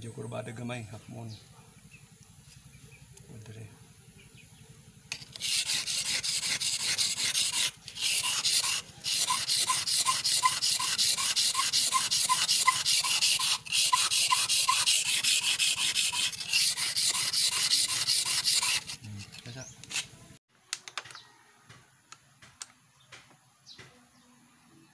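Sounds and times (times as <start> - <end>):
blade scraping on wet whetstone: 5.1 - 20.2.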